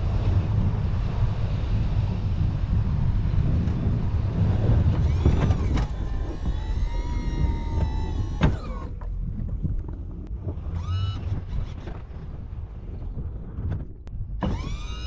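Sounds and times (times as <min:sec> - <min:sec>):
engine rumbling under load: 0:00.0 - 0:15.0
rising whining tone: 0:04.9 - 0:09.0, 0:14.4 - 0:15.0.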